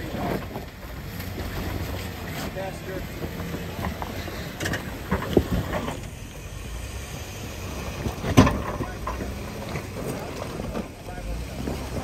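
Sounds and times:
low engine rumble: 0:00.0 - 0:12.0.

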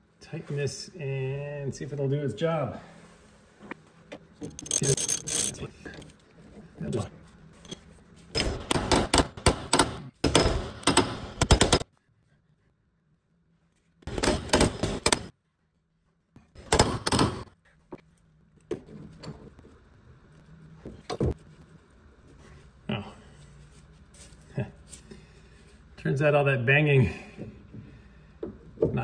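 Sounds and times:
hand tools clicking and knocking: 0:04.1 - 0:06.1, 0:07.7 - 0:11.8, 0:14.1 - 0:15.3.

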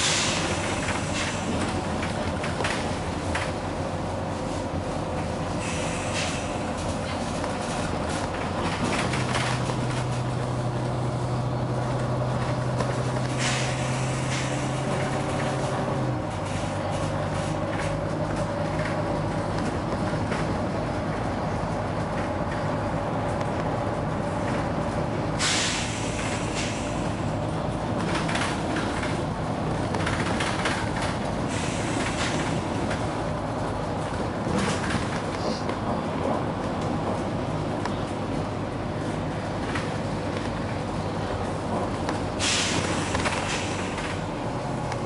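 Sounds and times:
bus engine droning: 0:00.0 - 0:45.0
air system hiss: 0:25.4 - 0:27.2, 0:42.4 - 0:44.0.

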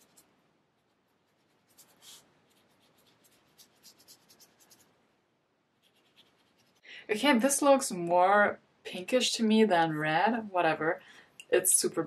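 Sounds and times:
paintbrush swishing on paper: 0:00.0 - 0:05.0, 0:05.7 - 0:06.9.

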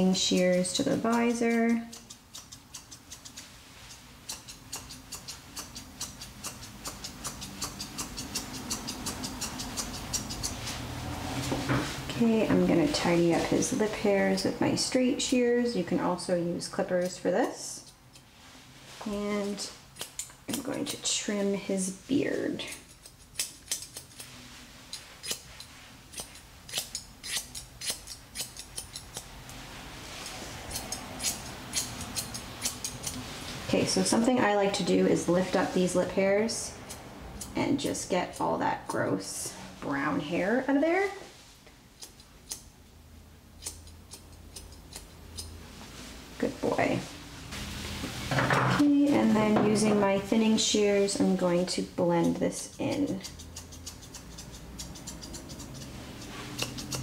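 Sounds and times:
thinning shears snipping hair: 0:00.0 - 0:11.6, 0:16.6 - 0:18.3, 0:19.4 - 0:29.6, 0:30.2 - 0:38.6, 0:42.0 - 0:42.7, 0:43.6 - 0:45.6, 0:50.3 - 0:57.0.

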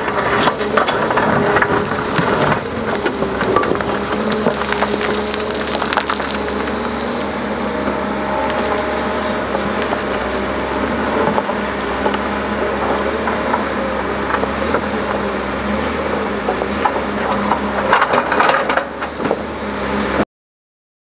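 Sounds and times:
stones and roots scraping: 0:00.0 - 0:19.5
diesel engine running: 0:00.0 - 0:20.2
knocks and cracks: 0:00.8 - 0:07.2.

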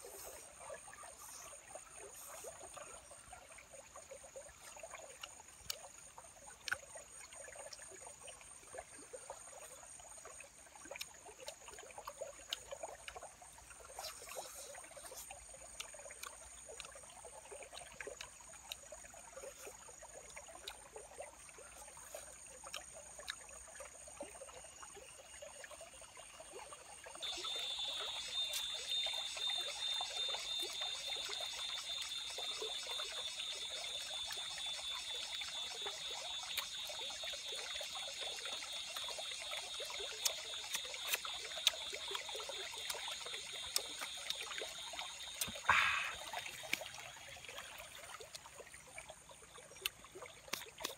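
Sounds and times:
high steady insect tones: 0:00.0 - 0:50.9
stream trickling: 0:00.0 - 0:50.9
fast-pulsing insect trill: 0:27.2 - 0:46.2.

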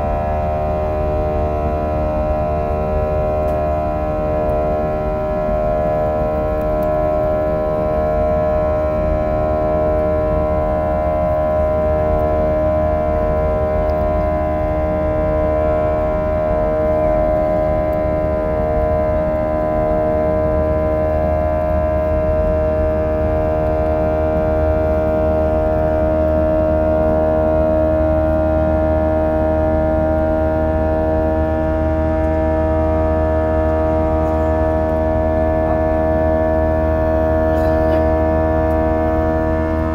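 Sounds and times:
jet engines droning: 0:00.0 - 0:39.9
low rumble: 0:30.4 - 0:39.9.

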